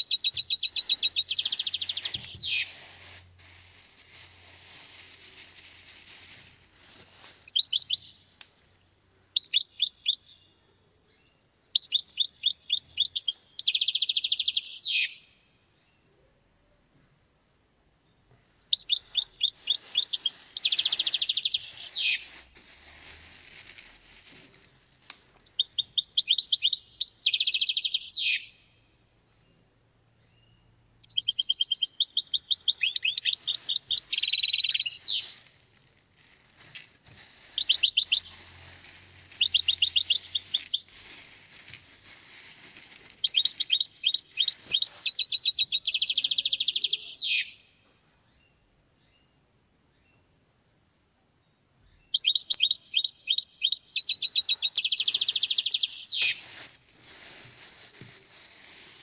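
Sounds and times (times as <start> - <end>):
goldfinch singing: 0.0 - 2.7, 11.2 - 15.2, 18.6 - 22.2, 25.4 - 28.5, 31.1 - 35.3, 37.6 - 38.3, 39.4 - 41.0, 43.2 - 47.6, 52.1 - 56.4.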